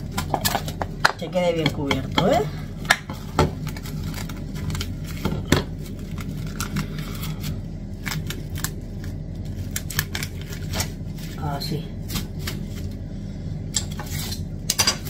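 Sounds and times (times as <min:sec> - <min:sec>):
cling film crinkling: 0:03.2 - 0:13.0.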